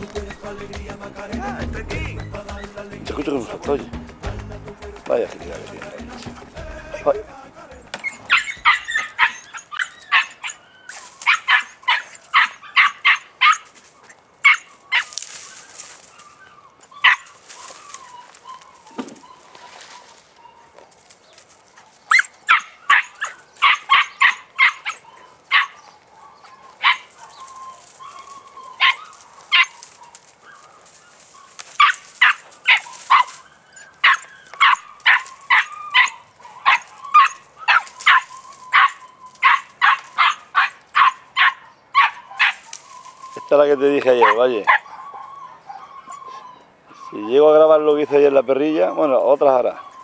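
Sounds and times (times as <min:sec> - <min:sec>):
puppy yapping: 0:08.0 - 0:13.8, 0:14.4 - 0:19.8, 0:22.1 - 0:50.0.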